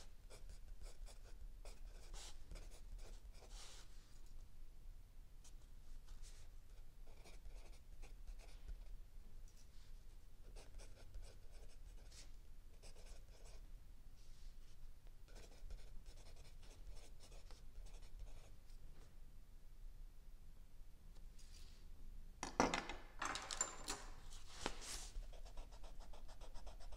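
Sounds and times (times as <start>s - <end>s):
pencil writing on paper: 7.1s - 8.5s, 10.6s - 12.1s, 15.3s - 18.5s.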